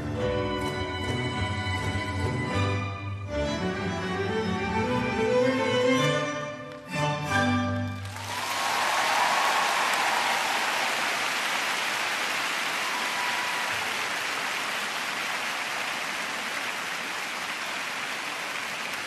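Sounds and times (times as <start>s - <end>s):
crowd applauding: 7.8s - 19.0s.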